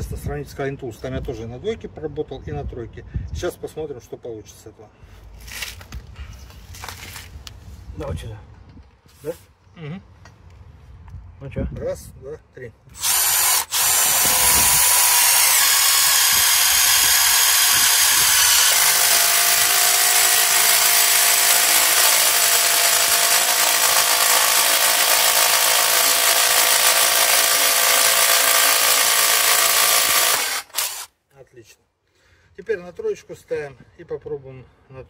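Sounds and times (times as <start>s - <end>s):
impact driver drilling steel: 13.0s - 31.1s.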